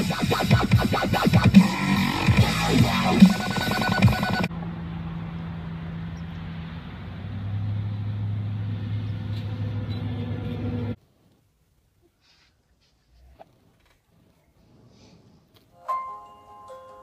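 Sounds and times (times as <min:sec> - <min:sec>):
engine running: 0:00.9 - 0:11.0.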